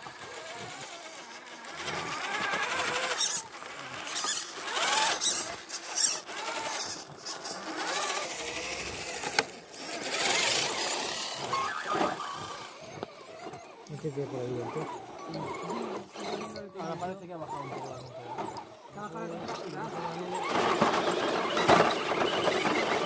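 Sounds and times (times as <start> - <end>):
electric motor whining: 0.0 - 23.0.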